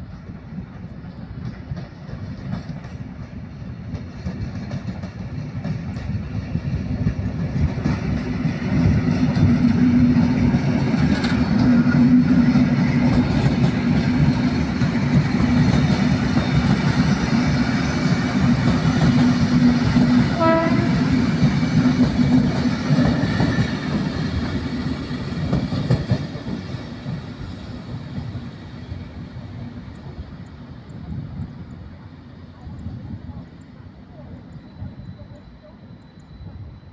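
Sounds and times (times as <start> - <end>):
train wheels rumbling on rails: 0.0 - 36.9
train horn toot: 20.2 - 21.3.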